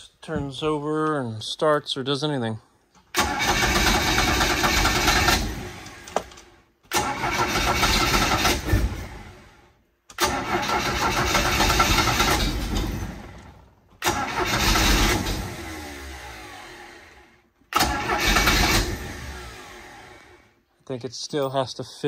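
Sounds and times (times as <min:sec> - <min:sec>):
boat engine starter cranking: 0:03.1 - 0:06.2, 0:06.9 - 0:08.7, 0:10.1 - 0:13.4, 0:14.0 - 0:15.6, 0:17.7 - 0:20.0.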